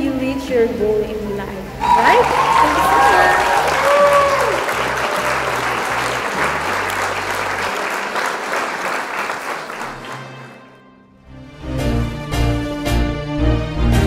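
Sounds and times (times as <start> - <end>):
background music bass line: 1.8 - 7.6, 11.3 - 14.0
crowd applause: 1.8 - 10.8.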